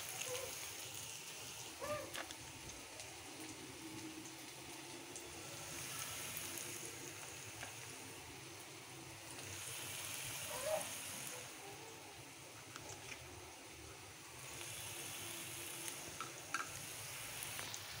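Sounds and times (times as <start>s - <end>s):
onions sizzling in oil: 0.0s - 18.0s.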